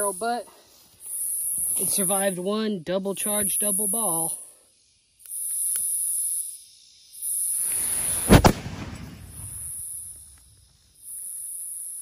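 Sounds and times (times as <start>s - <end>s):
pistol gunshot: 8.2s - 9.5s
rumbling echo: 8.3s - 9.6s.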